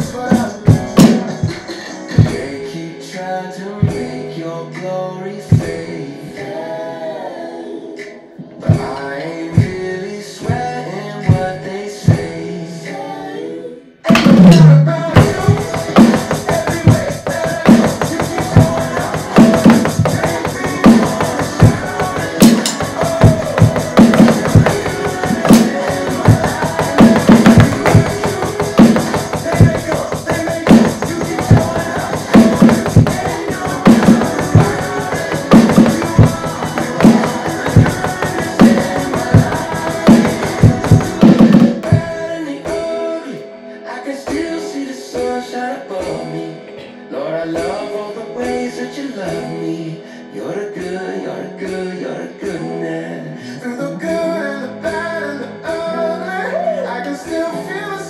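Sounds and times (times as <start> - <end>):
electronic drum kit beat: 0.0 - 2.6, 3.8 - 4.1, 5.5 - 5.8, 8.7 - 9.0, 11.3 - 11.5, 12.1 - 12.4, 14.1 - 42.9
pop-rock song: 0.0 - 58.0.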